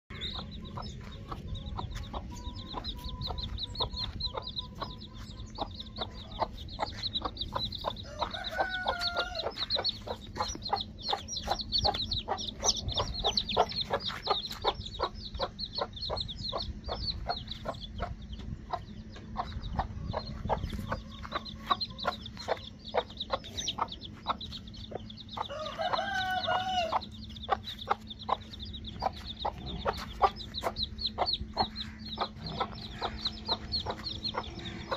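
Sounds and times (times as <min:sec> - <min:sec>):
chicks peeping: 0:00.1 - 0:34.9
hen clucking: 0:00.1 - 0:34.9
chicken drawn-out call: 0:08.0 - 0:10.0, 0:25.5 - 0:27.1.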